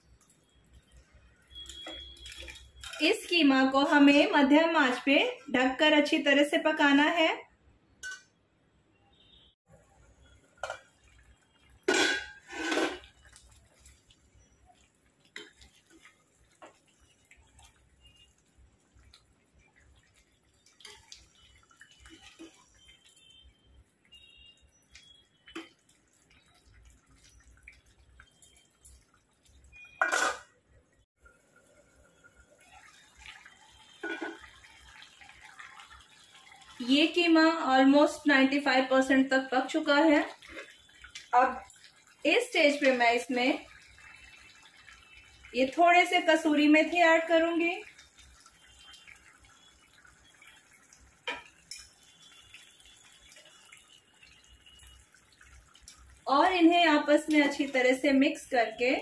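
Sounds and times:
food bubbling in a pot: 0:00.0 - 0:03.3, 0:09.2 - 0:59.0
metal lid clattering: 0:11.9 - 0:13.0, 0:30.0 - 0:30.5
metal ladle stirring: 0:11.9 - 0:13.9.

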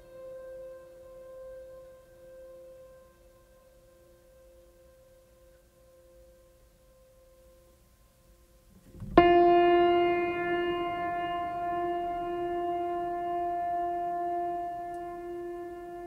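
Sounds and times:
faint held music tones: 0:00.0 - 0:16.0
loud held music note: 0:08.9 - 0:16.0.

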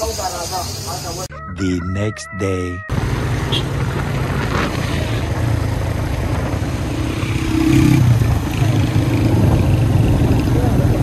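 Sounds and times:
road noise: 0:00.0 - 0:11.0
motorcycle engine running: 0:02.9 - 0:11.0.

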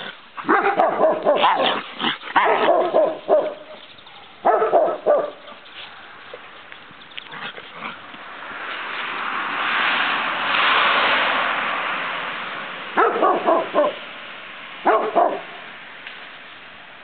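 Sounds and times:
dog barking: 0:00.4 - 0:01.8, 0:02.4 - 0:05.6, 0:13.0 - 0:14.0, 0:14.8 - 0:15.6
loud rushing noise: 0:08.3 - 0:14.5.

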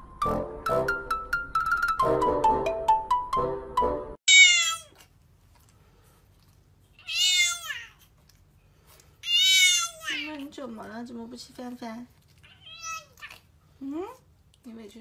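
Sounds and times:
music: 0:00.0 - 0:04.2
young cat meowing: 0:04.3 - 0:05.0, 0:07.0 - 0:08.0, 0:09.2 - 0:10.4, 0:12.4 - 0:13.4.

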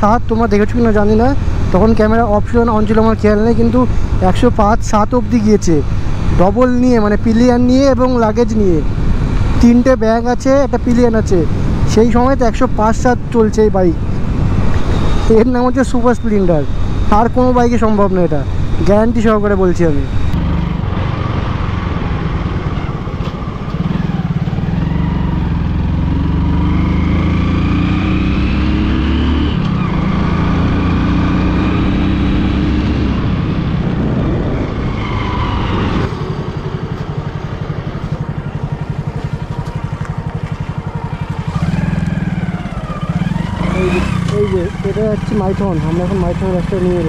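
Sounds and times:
motorcycle engine running: 0:36.1 - 0:47.0.

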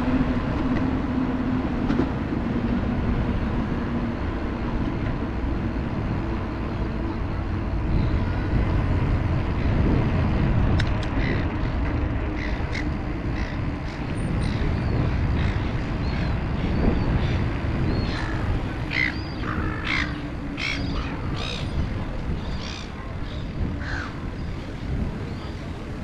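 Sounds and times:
wind rumble on microphone: 0:00.0 - 0:26.0.

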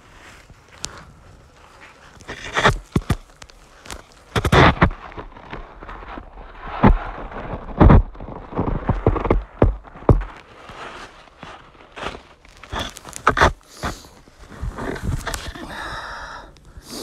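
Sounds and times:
footsteps crunching in snow: 0:00.0 - 0:15.6
microphone handling rumble: 0:04.3 - 0:10.4, 0:14.4 - 0:15.6.

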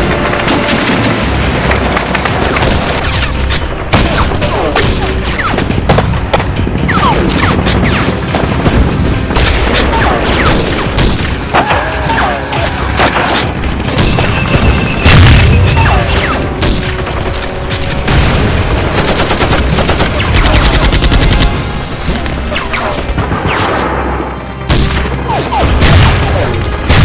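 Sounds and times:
rifle and machine-gun fire: 0:00.0 - 0:05.9, 0:12.8 - 0:21.7
booming explosions: 0:00.0 - 0:11.6, 0:12.9 - 0:22.0, 0:24.7 - 0:27.0
film score music: 0:00.0 - 0:27.0.

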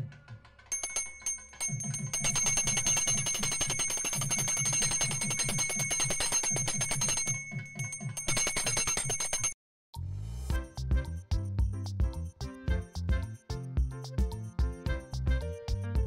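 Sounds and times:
background music: 0:00.0 - 0:03.6, 0:10.0 - 0:16.0
hand bell ringing rapidly: 0:00.7 - 0:09.6.

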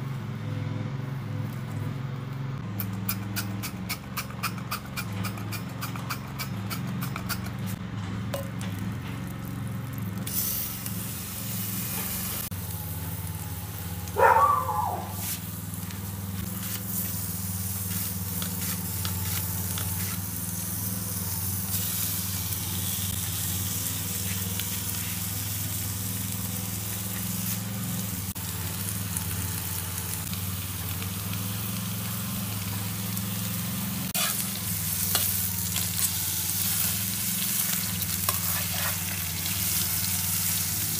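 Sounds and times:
steak and onions sizzling in pan: 0:10.3 - 0:40.9.

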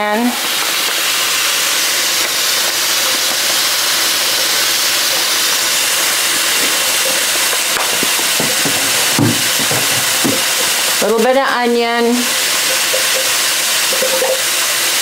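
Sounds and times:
steak sizzling in a pan: 0:00.2 - 0:15.0
light knocks: 0:07.8 - 0:10.7.

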